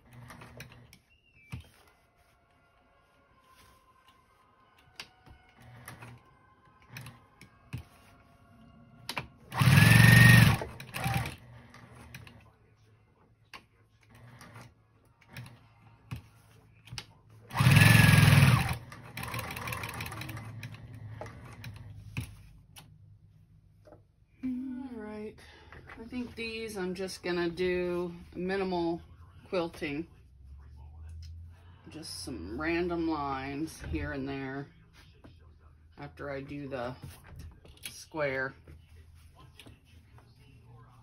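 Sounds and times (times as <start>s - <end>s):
sewing machine stitching: 9.5s - 12.3s, 17.5s - 21.8s.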